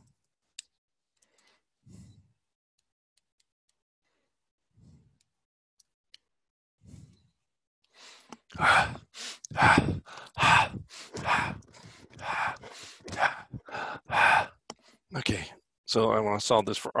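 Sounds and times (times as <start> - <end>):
person making breathy vocal sounds: 8.5 - 14.6.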